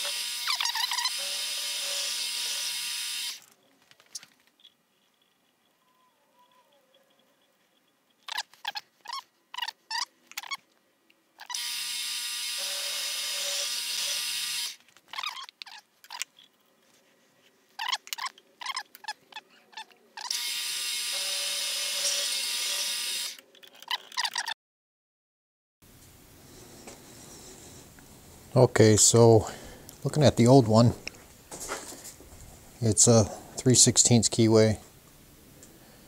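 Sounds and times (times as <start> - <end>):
milling machine cutting: 0.0 - 3.4, 11.5 - 14.8, 20.2 - 23.4.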